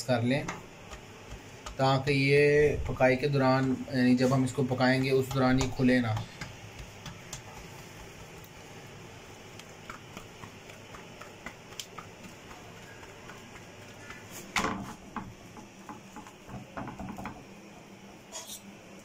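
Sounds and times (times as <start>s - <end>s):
hands patting dough: 0.0s - 17.6s
knock on counter: 15.9s - 17.4s.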